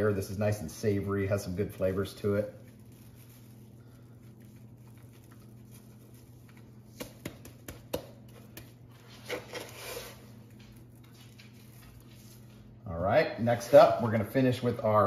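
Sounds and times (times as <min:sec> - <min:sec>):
rustling rub: 0:00.8 - 0:07.0, 0:08.8 - 0:12.8
hands patting meat: 0:04.2 - 0:09.6.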